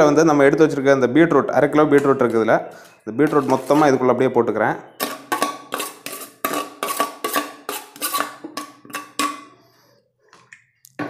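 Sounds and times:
spoon tapping steel plate: 5.0s - 9.5s.

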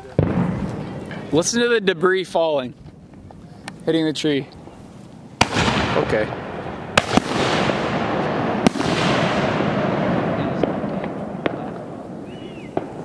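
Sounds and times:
fireworks bangs: 0.0s - 2.2s, 5.4s - 13.0s.

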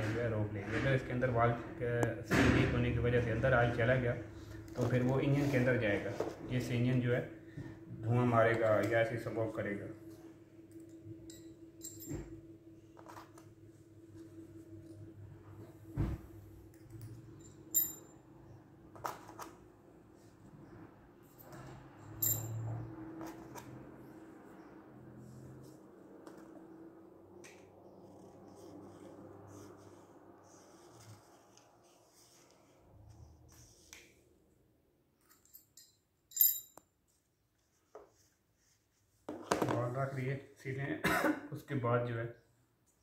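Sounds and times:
ringing metallic clink: 11.3s - 12.3s, 17.4s - 18.1s, 22.1s - 22.6s, 35.4s - 36.8s.

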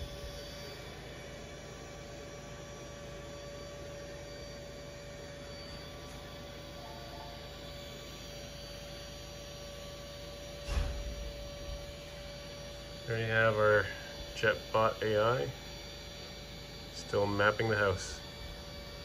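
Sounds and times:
robot vacuum humming: 0.0s - 19.0s
brief thump: 10.7s - 11.3s.

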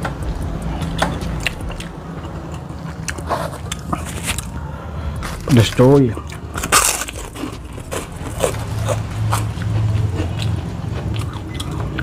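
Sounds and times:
low hum: 0.0s - 12.0s
crunching and chewing cracker: 0.2s - 4.6s, 5.2s - 12.0s.

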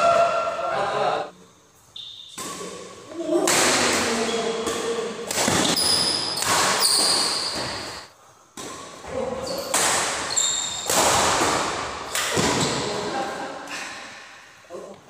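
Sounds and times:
shoes squeaking on court floor: 1.9s - 2.5s, 5.3s - 8.1s, 9.1s - 10.9s
racket striking shuttlecock: 3.5s - 7.8s.

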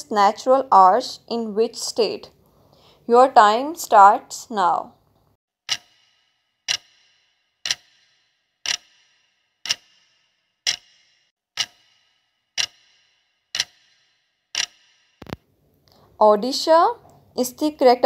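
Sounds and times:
clock ticking: 5.7s - 15.4s.

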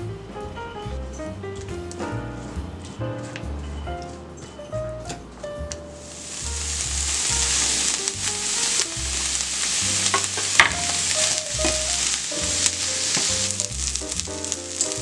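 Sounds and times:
food sizzling in a pan: 6.0s - 15.0s.

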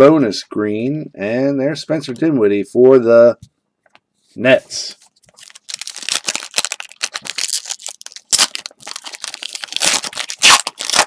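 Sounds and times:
foil wrapper crinkling and tearing: 5.2s - 11.0s.

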